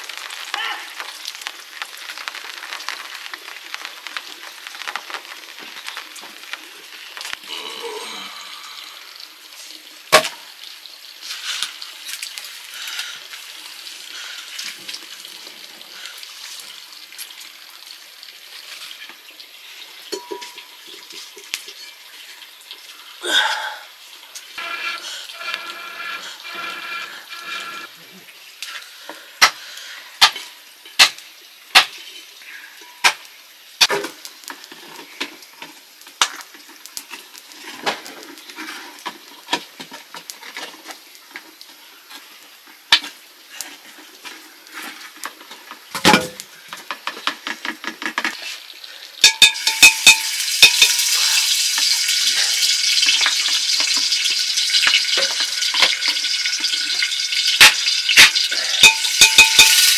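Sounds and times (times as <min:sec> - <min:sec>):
metal utensils scraping a pot: 0:24.6 - 0:27.9, 0:49.2 - 0:59.9.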